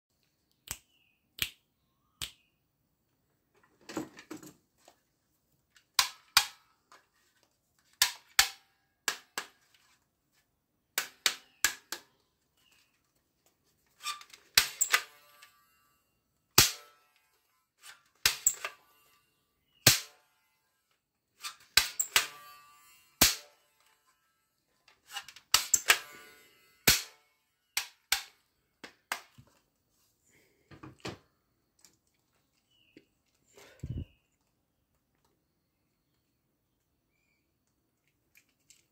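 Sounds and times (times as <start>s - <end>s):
plastic toy gun clicks: 6.0s - 6.7s, 7.9s - 9.6s, 25.1s - 26.1s, 27.8s - 28.4s.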